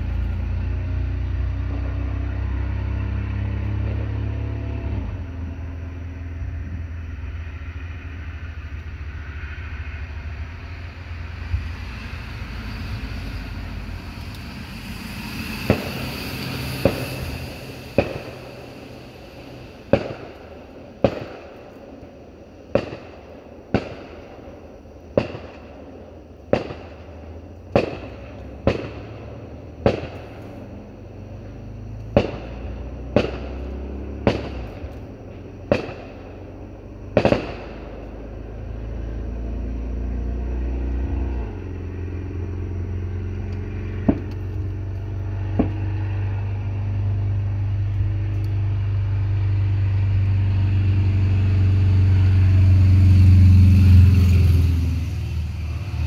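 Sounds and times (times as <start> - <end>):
low rumble with hiss: 0.0 - 56.0
fireworks bangs with echo: 11.6 - 30.9, 32.1 - 39.2.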